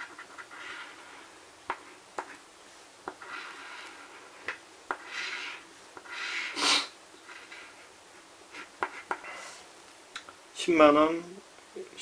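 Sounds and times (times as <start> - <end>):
coin scratching lottery ticket: 0.0 - 1.3, 3.2 - 6.6.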